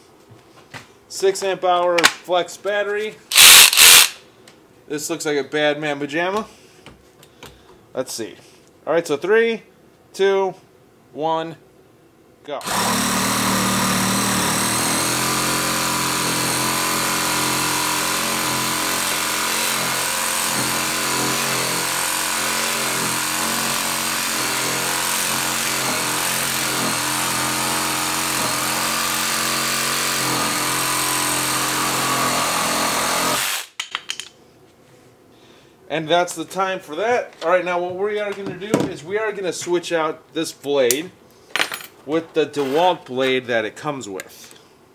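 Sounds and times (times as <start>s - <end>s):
reciprocating saw cutting wood: 3.3s - 4.2s, 12.6s - 33.7s.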